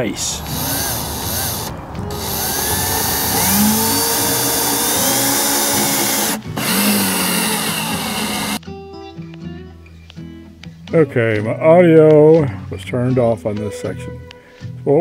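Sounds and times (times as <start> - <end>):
guitar music: 0.0 - 14.6
cordless drill driving screw: 0.5 - 8.6.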